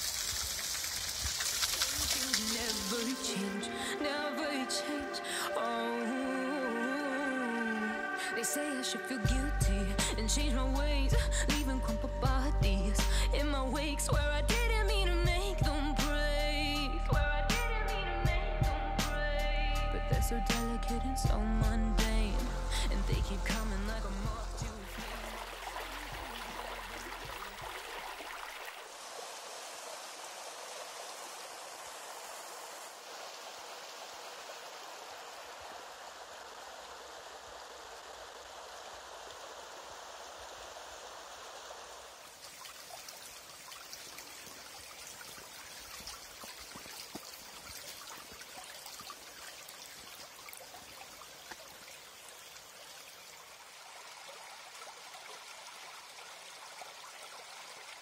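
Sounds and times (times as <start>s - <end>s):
water rushing in channel: 0.0s - 9.5s, 22.7s - 58.0s.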